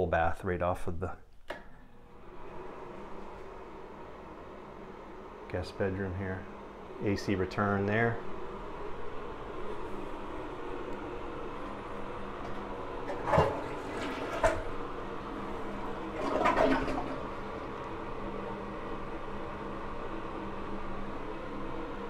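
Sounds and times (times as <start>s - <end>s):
air conditioning hum: 0.0s - 22.0s.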